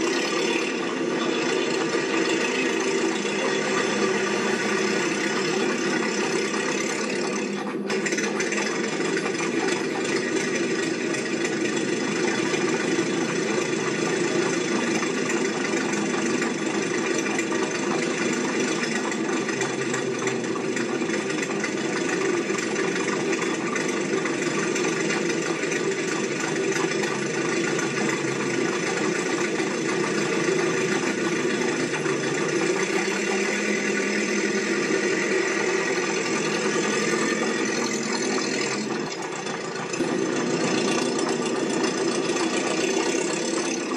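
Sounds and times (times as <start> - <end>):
steady mechanical running noise: 0.0 - 43.9.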